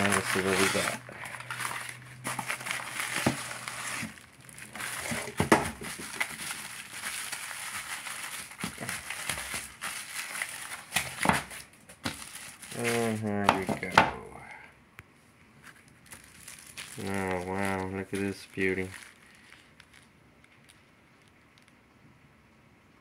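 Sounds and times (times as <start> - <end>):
bubble wrap crinkling: 0.0 - 14.3, 15.5 - 21.8.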